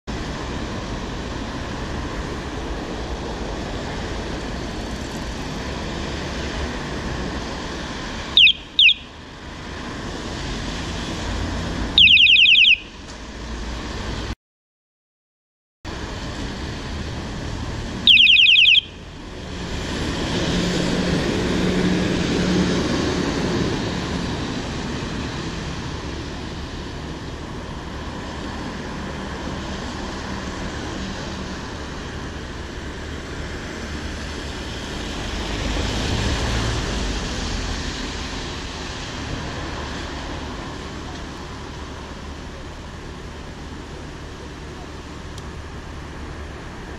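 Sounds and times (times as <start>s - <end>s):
traffic on wet road: 0.1s - 14.4s, 15.9s - 46.9s
loud high-pitched beep: 8.4s - 9.1s, 12.0s - 13.0s, 18.1s - 19.0s.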